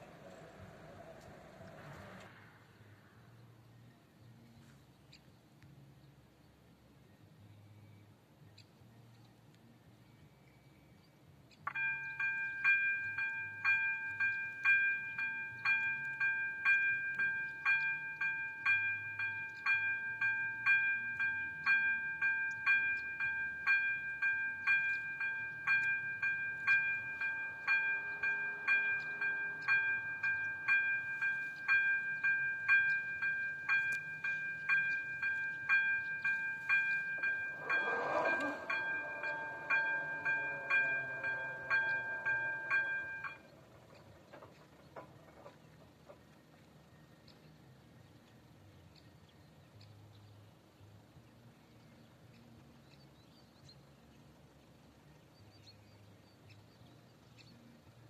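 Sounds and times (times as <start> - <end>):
level crossing warning bell: 11.7 - 44.7.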